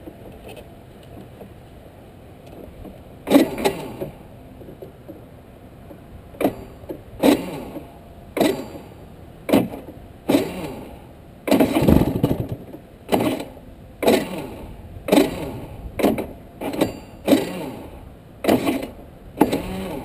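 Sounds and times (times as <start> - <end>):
kart engine revving in bursts: 3.2 - 4.2, 7.2 - 7.8, 8.4 - 12.5, 13.1 - 20.0.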